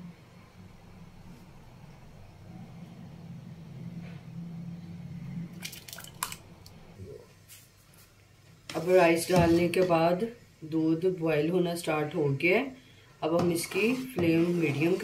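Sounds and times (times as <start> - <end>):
low steady hum: 0.0 - 15.0
faint liquid sounds: 4.0 - 7.3.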